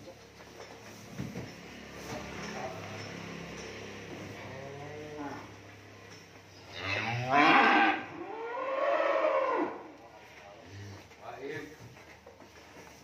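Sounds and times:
cattle mooing: 4.4s - 5.6s, 6.6s - 9.9s.

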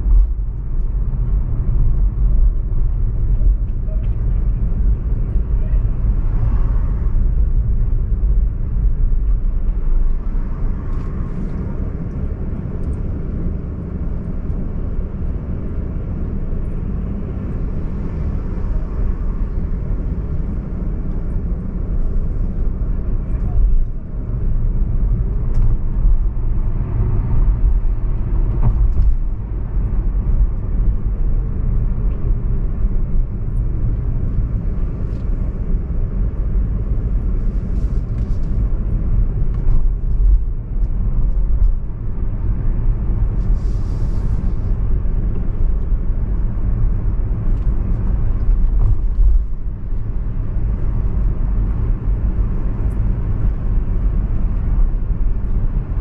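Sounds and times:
car engine and tyre rumble: 0.0s - 56.0s.

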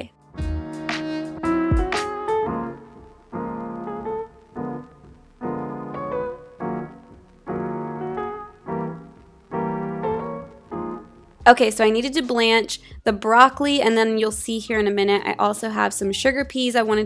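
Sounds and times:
piano chords: 0.0s - 12.7s.

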